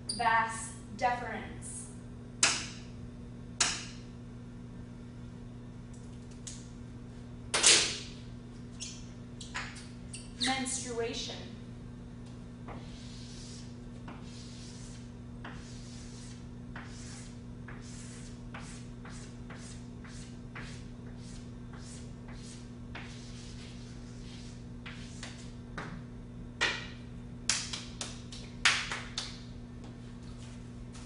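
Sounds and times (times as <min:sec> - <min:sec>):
steady low hum: 0:00.0 - 0:31.0
chalk scratching on blackboard: 0:12.8 - 0:25.5.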